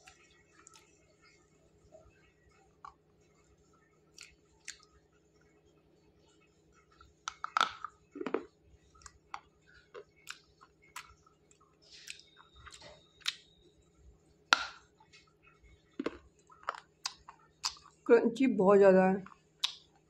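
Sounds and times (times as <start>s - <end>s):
faint steady hum: 0.0s - 20.0s
crunchy chewing: 4.1s - 5.0s, 6.8s - 13.7s, 14.6s - 18.0s.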